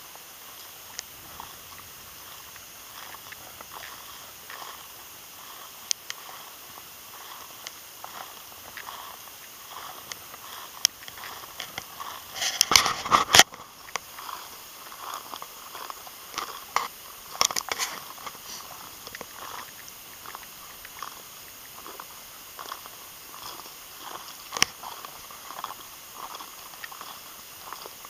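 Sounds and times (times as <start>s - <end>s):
footsteps crunching dry grass: 0.1s - 28.0s.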